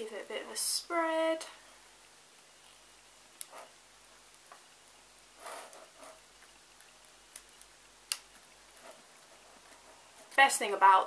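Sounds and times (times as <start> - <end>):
spoon scraping icing: 5.3 - 7.6.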